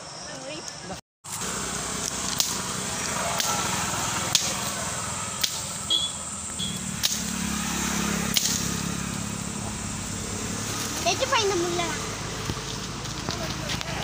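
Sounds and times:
blade chopping woody stem: 2.0 - 4.8, 5.4 - 5.9, 6.5 - 7.6, 8.2 - 8.9.

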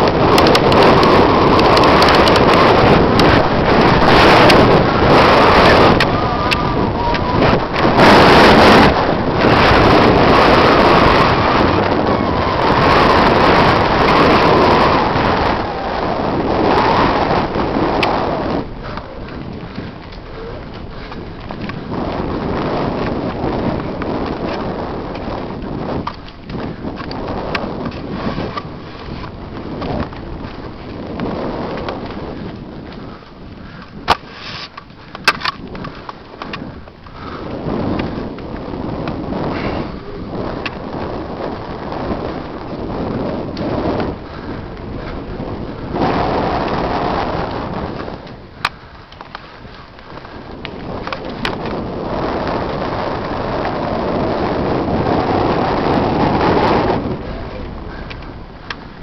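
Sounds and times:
tyres rumbling on dirt: 0.0 - 34.2
bike clicks and rattles: 0.0 - 59.0
wind buffeting microphone: 0.0 - 59.0
bike knocks and rattles: 17.6 - 45.6.

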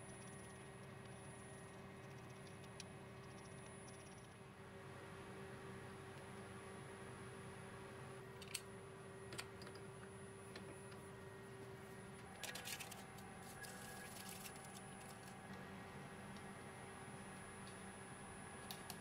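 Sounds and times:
workshop hum: 0.0 - 19.0
paper rustling: 12.4 - 15.4.

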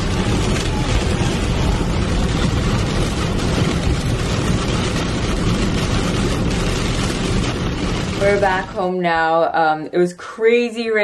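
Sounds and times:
tyres hissing on wet road: 0.0 - 8.8
low engine rumble: 0.0 - 9.0
rain on windshield: 0.0 - 9.2.

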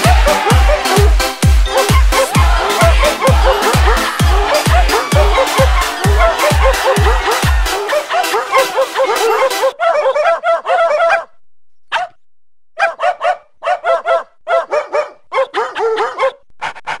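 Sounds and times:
small dog yapping: 1.7 - 2.4, 8.1 - 11.3.

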